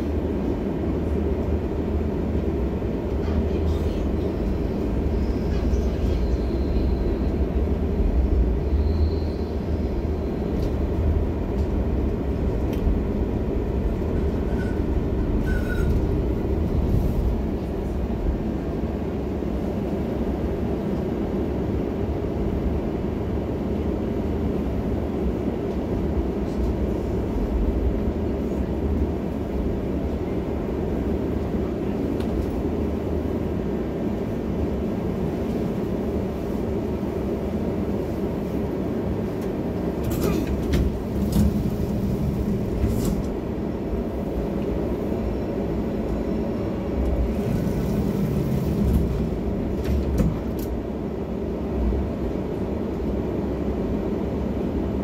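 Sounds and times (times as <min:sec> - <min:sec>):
tram rumbling on rails: 0:00.0 - 0:55.0.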